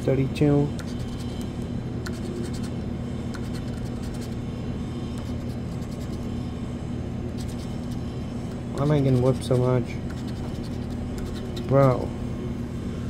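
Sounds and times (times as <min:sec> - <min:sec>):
steady low hum: 0:00.0 - 0:13.0
pencil scraping lottery ticket: 0:00.8 - 0:01.5, 0:02.1 - 0:02.8, 0:03.4 - 0:04.4, 0:05.2 - 0:06.3, 0:07.4 - 0:08.1, 0:08.8 - 0:12.0.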